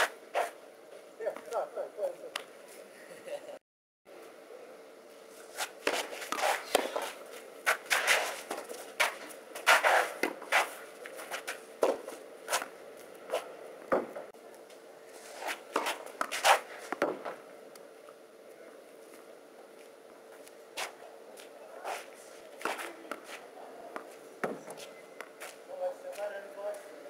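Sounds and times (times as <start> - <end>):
rackets hitting tennis ball: 5.5 - 14.3, 15.5 - 17.4, 22.6 - 25.6.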